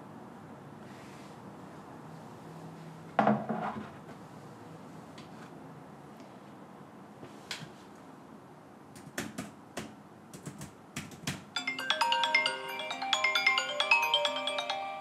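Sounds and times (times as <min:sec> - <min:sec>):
laptop keyboard typing: 0:09.0 - 0:14.5
smartphone ringtone: 0:11.6 - 0:15.0.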